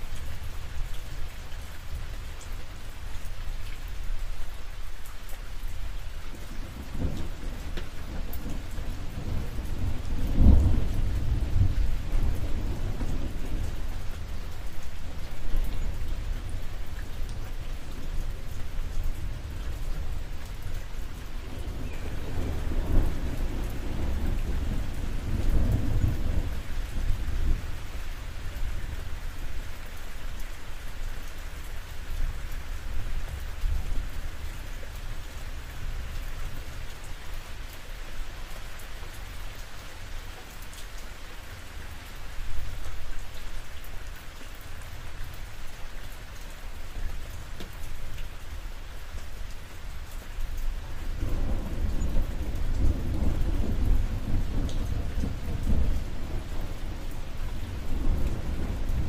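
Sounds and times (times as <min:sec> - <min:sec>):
rain on a roof: 0:00.0 - 0:59.0
low rolling thunder: 0:06.3 - 0:14.5, 0:21.2 - 0:28.0, 0:51.1 - 0:59.0.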